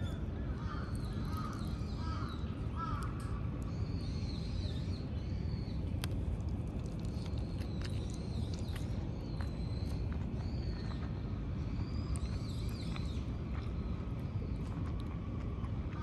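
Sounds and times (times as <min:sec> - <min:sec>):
birds calling: 0:00.0 - 0:05.9
low outdoor rumble: 0:00.0 - 0:16.0.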